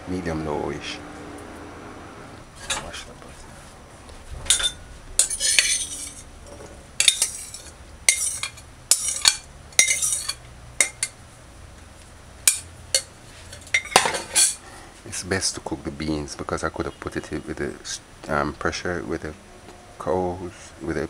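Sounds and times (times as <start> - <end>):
spoon scraping glass bowl: 4.5 - 6.3, 7.0 - 11.1.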